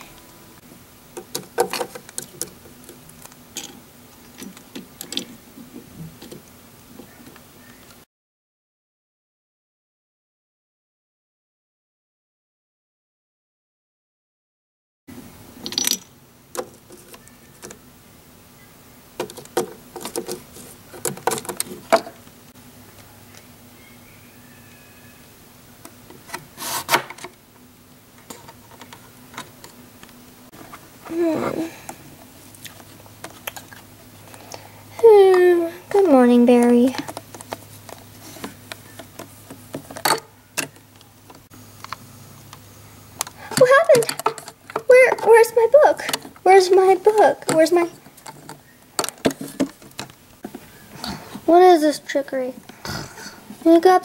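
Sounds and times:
faint steady hum: 0:00.0 - 0:08.0, 0:15.1 - 0:54.0
plastic toy clicking and knocking: 0:01.2 - 0:02.6
rustle: 0:15.1 - 0:46.7.

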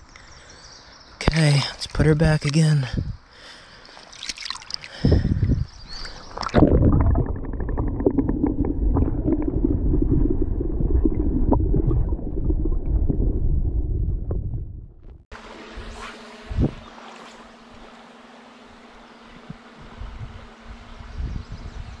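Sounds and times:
stream hissing: 0:01.2 - 0:06.6, 0:15.4 - 0:19.1
water splashing: 0:03.8 - 0:13.4
underwater rumble and gurgle: 0:04.8 - 0:15.3.

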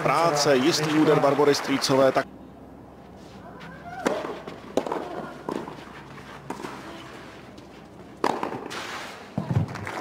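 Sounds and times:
tennis racket hitting ball: 0:04.0 - 0:06.9, 0:08.1 - 0:09.0.

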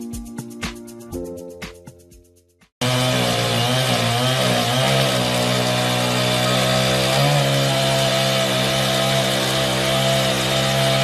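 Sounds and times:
chainsaw cutting a log: 0:02.8 - 0:11.0.

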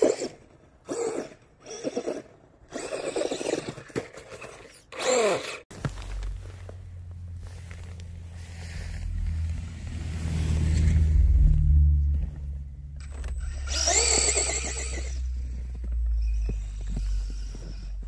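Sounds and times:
low rumble: 0:05.8 - 0:18.0
electric motor whining: 0:08.8 - 0:18.0.

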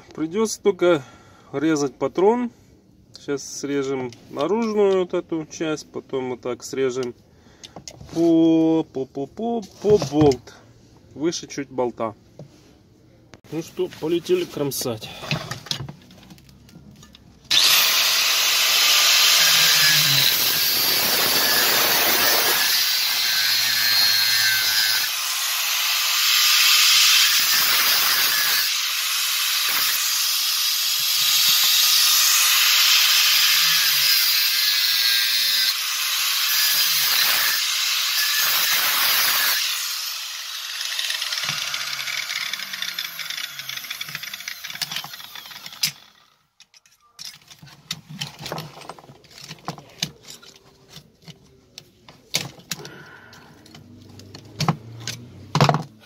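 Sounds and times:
angle grinder cutting steel: 0:17.5 - 0:46.4.

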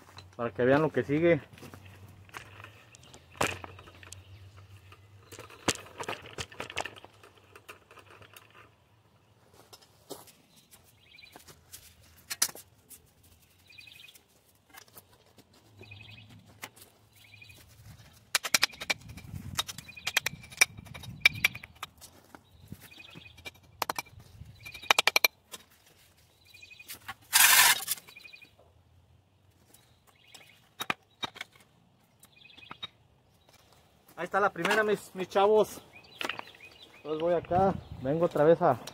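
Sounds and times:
knocks and clicks: 0:23.3 - 0:25.3.

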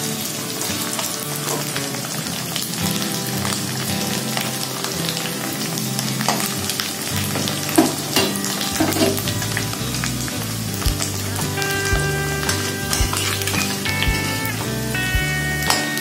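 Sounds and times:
fish sizzling in hot oil: 0:00.0 - 0:11.8.

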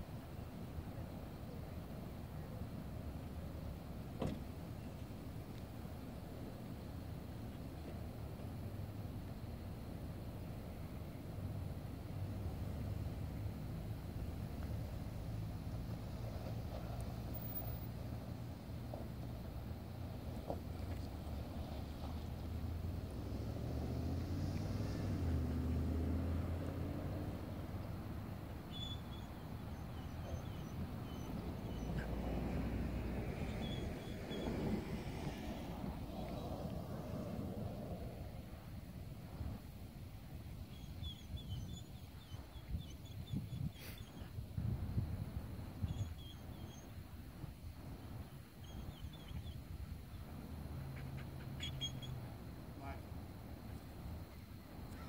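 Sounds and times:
vehicle engine rumble: 0:00.0 - 0:55.0
songbirds chirping: 0:00.2 - 0:34.9, 0:38.0 - 0:55.0
faint bird chirps: 0:28.7 - 0:32.2, 0:33.4 - 0:34.6, 0:40.6 - 0:44.4, 0:45.8 - 0:47.0, 0:48.2 - 0:49.7, 0:50.9 - 0:53.0
wind rumble on microphone: 0:30.8 - 0:50.9
wind on microphone: 0:42.6 - 0:46.2.

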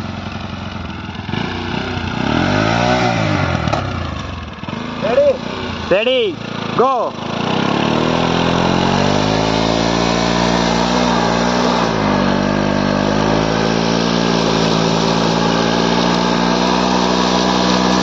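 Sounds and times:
motorcycle engine at high revs: 0:00.0 - 0:18.0
rear wheel spinning in sand: 0:06.6 - 0:18.0.

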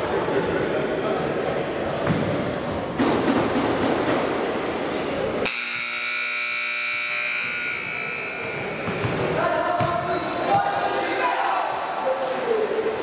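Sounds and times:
crowd chatter echoing: 0:00.0 - 0:13.0
scoreboard buzzer tone: 0:05.4 - 0:08.8.

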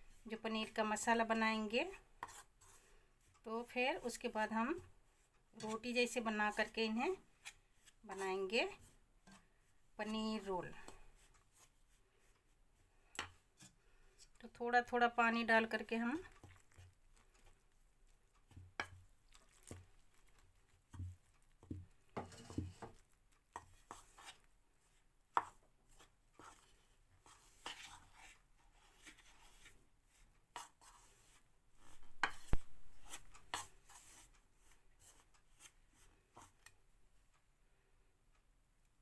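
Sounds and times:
spoon scraping and knocking bowl: 0:20.9 - 0:24.4, 0:30.6 - 0:34.2.

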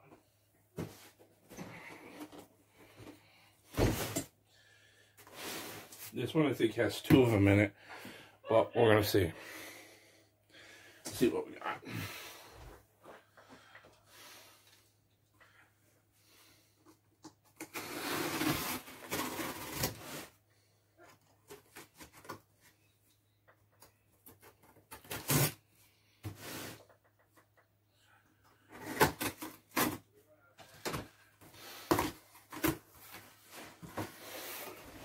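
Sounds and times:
packing tape cut and pulled: 0:17.6 - 0:20.3, 0:24.4 - 0:25.6, 0:28.7 - 0:30.0.

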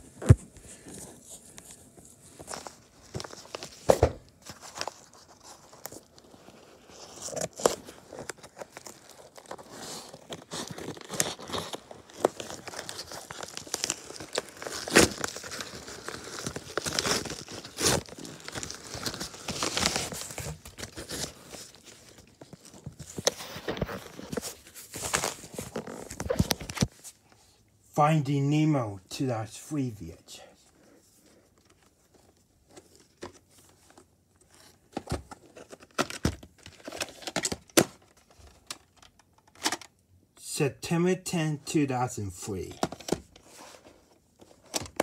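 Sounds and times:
packaging tearing and crumpling: 0:04.5 - 0:24.4.

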